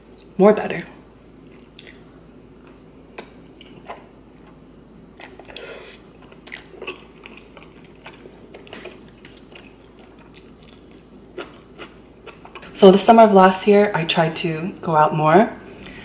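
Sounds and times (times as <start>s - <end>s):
person chewing noodles: 1.4s - 12.8s
wet mouth clicks and smacks: 1.8s - 2.0s.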